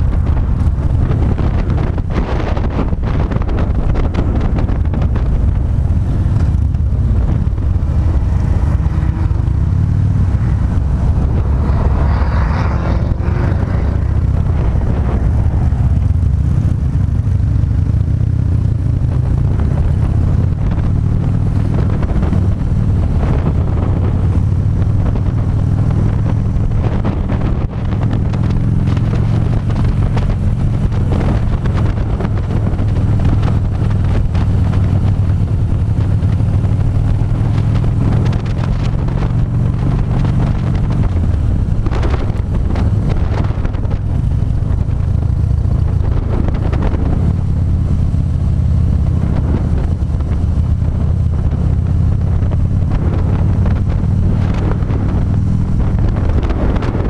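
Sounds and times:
motorcycle engine running: 0.0 - 57.0
wind buffeting microphone: 0.0 - 57.0.

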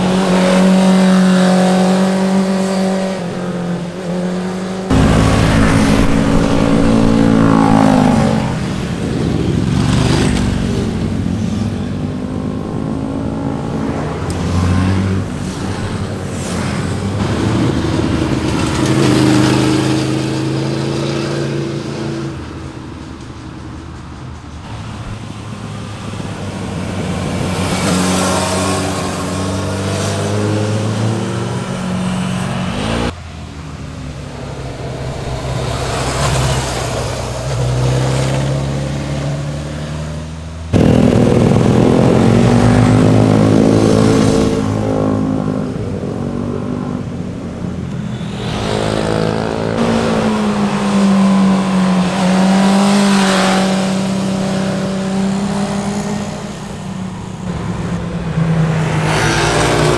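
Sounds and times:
motorcycles revving past: 0.0 - 22.8, 25.8 - 59.9.

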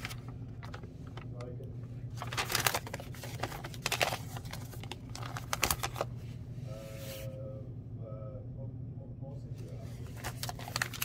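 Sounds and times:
paper rustling and crinkling: 0.0 - 1.4, 2.1 - 6.2, 9.8 - 11.0.

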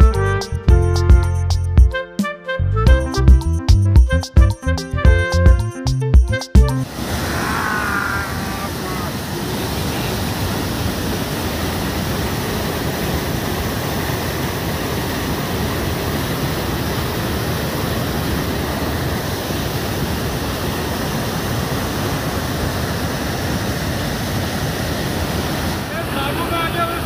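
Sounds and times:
waterfall pouring over rocks: 6.8 - 27.0.

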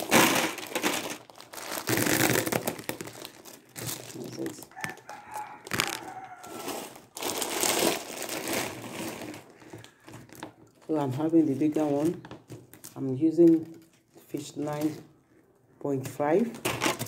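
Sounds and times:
plastic bags crinkling: 0.0 - 15.4, 16.4 - 17.0
rooster crowing: 4.7 - 7.0.

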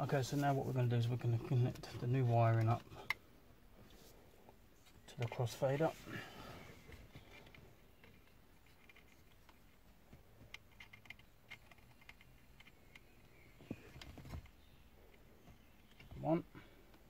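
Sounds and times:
clicks and rustles of wires: 6.8 - 17.0.

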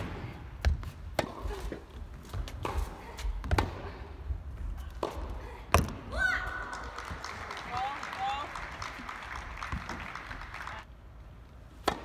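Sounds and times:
tennis ball bounces: 11.8 - 12.0
tennis racket strikes: 11.8 - 12.0.

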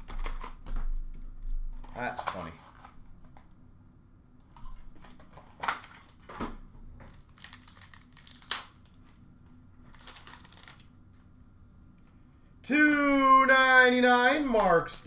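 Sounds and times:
cards and packaging rustling: 0.0 - 3.5, 7.1 - 11.3.

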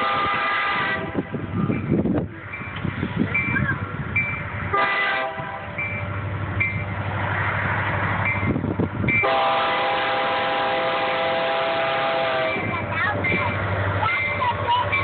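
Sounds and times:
locomotive air horn blasts: 0.0 - 1.8, 4.7 - 5.8, 9.2 - 12.7
locomotive rumble: 0.0 - 15.0
crossing signal bell dinging: 5.6 - 6.9.

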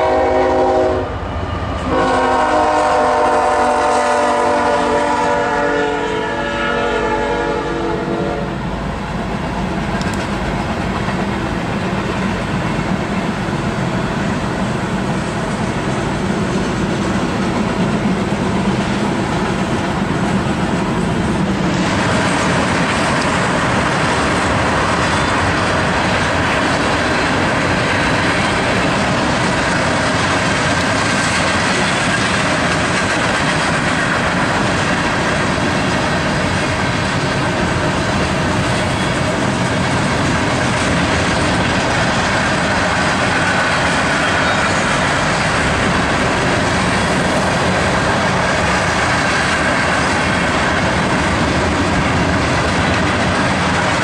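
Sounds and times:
locomotive horn blast: 0.0 - 1.2, 1.8 - 8.6
train rumble and rail noise: 0.0 - 54.0.

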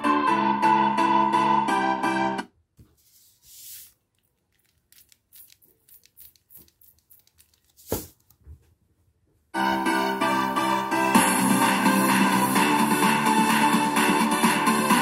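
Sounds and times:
piano music: 0.0 - 2.5, 9.6 - 15.0.

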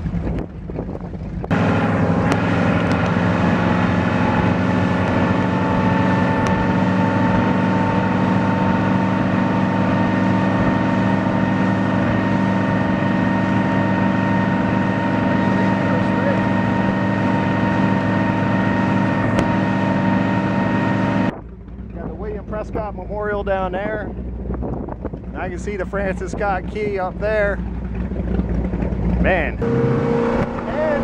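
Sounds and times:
wind noise: 0.0 - 19.7, 21.2 - 27.6
motorboat engine drone: 0.0 - 31.0
water noise: 0.0 - 31.0.

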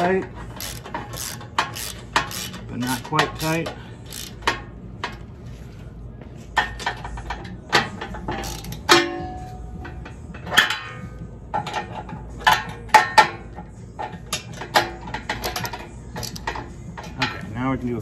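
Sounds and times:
socket wrench clinking on metal: 0.0 - 5.2, 7.8 - 9.0, 14.1 - 17.4.

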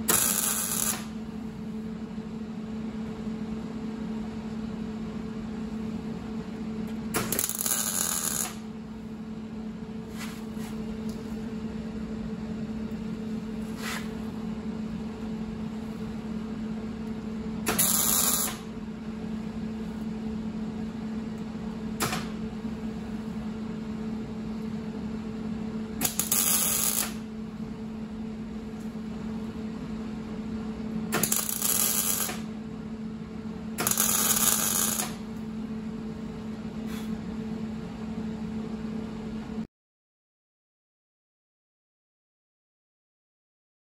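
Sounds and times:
welder crackling: 0.0 - 1.2, 7.2 - 8.6, 17.7 - 18.6, 26.0 - 27.2, 31.2 - 32.5, 33.8 - 35.2
welder humming: 0.0 - 1.3, 6.8 - 11.8, 12.6 - 18.8, 26.0 - 27.3, 31.0 - 32.6, 33.7 - 35.4.

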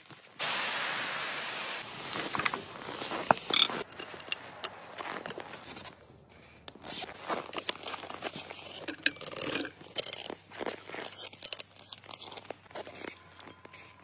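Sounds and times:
pressure cooker steam hissing: 0.4 - 1.9.

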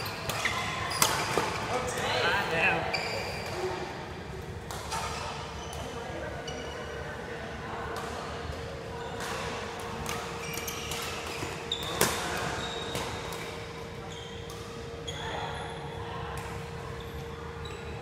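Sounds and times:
shoes squeaking on court: 0.0 - 3.7, 4.8 - 7.0, 9.0 - 15.8.

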